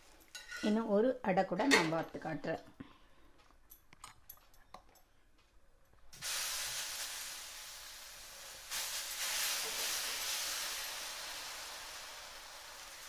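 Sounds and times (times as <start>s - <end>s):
batter sizzling on griddle: 6.1s - 13.0s.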